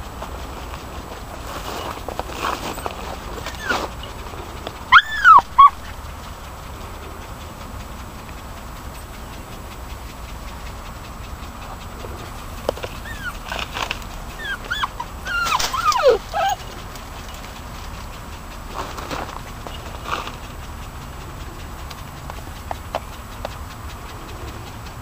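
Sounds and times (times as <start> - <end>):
puppy whining and yelping: 1.6 - 21.6.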